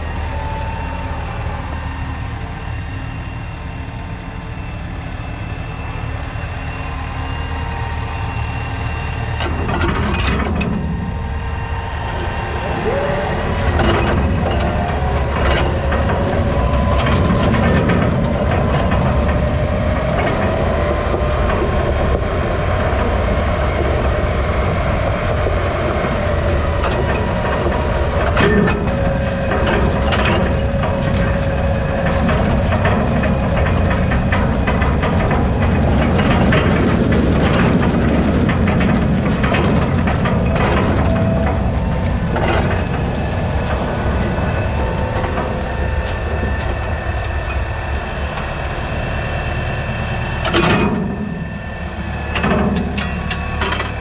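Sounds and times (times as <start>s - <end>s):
tractor engine running: 0.0s - 54.0s
wagon rattling and clanking: 12.8s - 23.9s, 25.8s - 47.7s.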